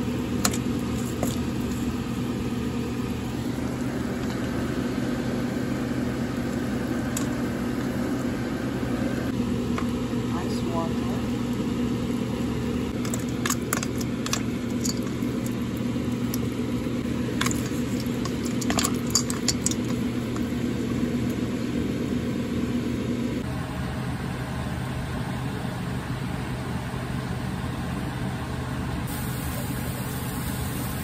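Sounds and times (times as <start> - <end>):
low hum: 0.0 - 26.2
water boiling in a pot: 9.4 - 22.8, 29.1 - 31.0.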